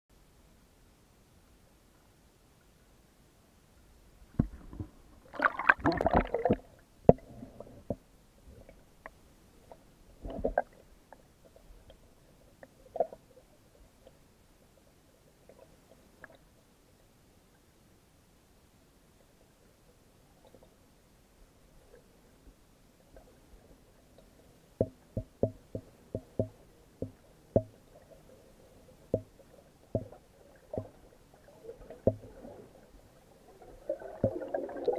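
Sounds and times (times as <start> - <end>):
water sloshing and gurgling: 4.2 - 14.3, 23.0 - 34.9
muffled underwater knocks: 4.3 - 5.0, 24.8 - 27.8, 29.1 - 31.0, 32.0 - 32.3.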